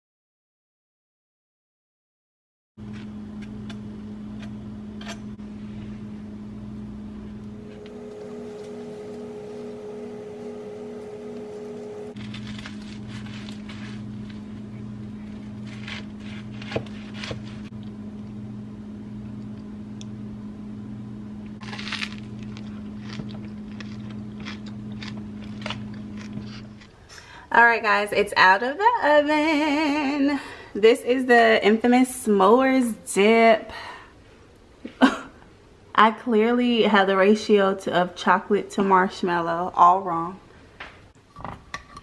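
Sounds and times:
droning background music: 7.6s - 12.2s
knife scraping through sandwich: 15.2s - 17.7s.

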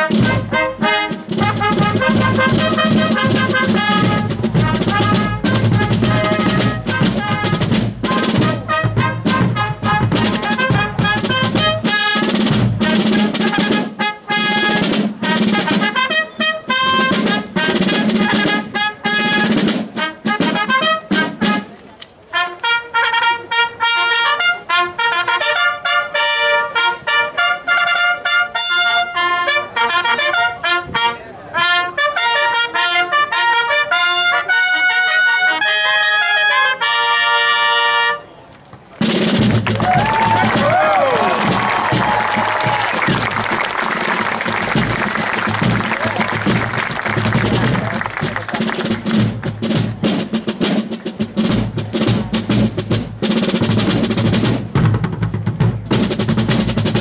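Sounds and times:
snare drums: 0.0s - 26.6s, 38.9s - 57.0s
bugles playing march tune: 0.0s - 57.0s
bass drum: 1.2s - 13.8s, 39.1s - 43.7s, 44.4s - 57.0s.

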